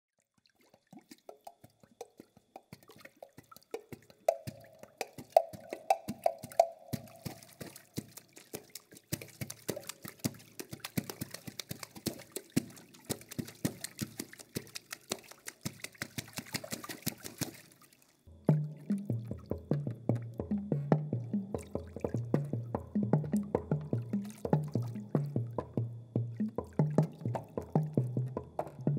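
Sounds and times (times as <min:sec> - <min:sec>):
hands striking water: 0:00.6 - 0:25.8
drum: 0:05.2 - 0:07.6, 0:18.3 - 0:28.9.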